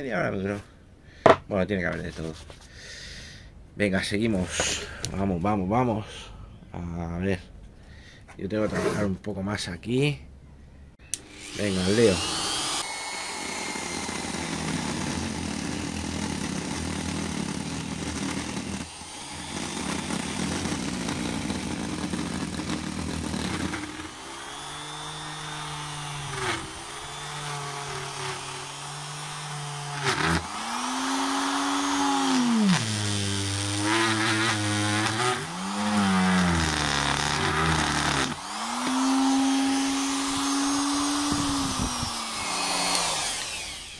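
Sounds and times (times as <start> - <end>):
die grinder grinding wood: 11.1 - 43.9.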